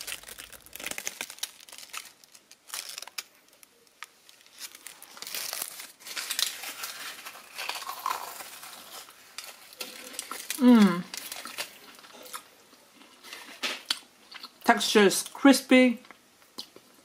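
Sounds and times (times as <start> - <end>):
paper baking cases crinkling: 0.0 - 12.2.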